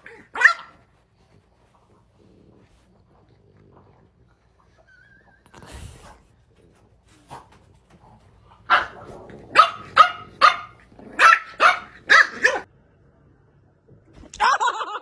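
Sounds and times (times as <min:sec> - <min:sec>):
dog barking: 0:00.2 - 0:00.8, 0:08.6 - 0:12.7.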